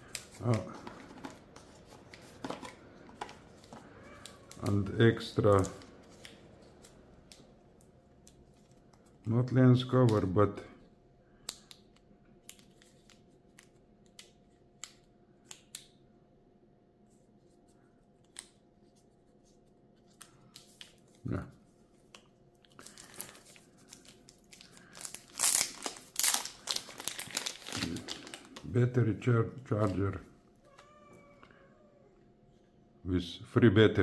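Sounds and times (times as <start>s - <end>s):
plastic bag crinkling: 22.7s - 28.8s.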